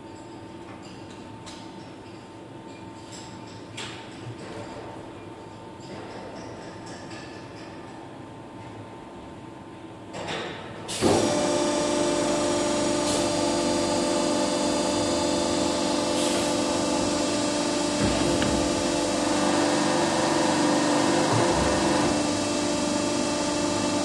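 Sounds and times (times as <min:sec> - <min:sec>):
hydraulic power unit whining: 0:11.0 - 0:24.0.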